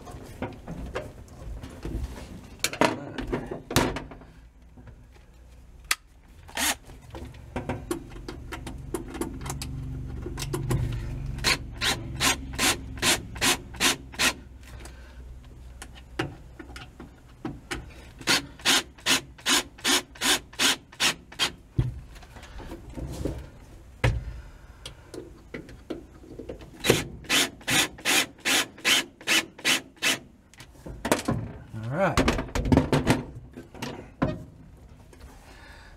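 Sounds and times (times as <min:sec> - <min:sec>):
drill clutch ratcheting clicks: 0:10.4 - 0:14.4.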